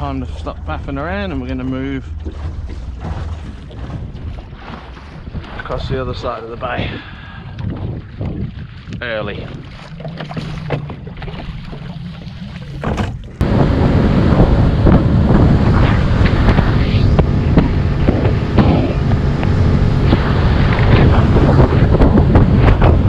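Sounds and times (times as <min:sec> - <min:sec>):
water slapping against hull: 0:00.0 - 0:23.0
wind buffeting microphone: 0:00.0 - 0:23.0
electric motor low hum: 0:10.2 - 0:23.0
knocks and clunks: 0:12.6 - 0:13.4.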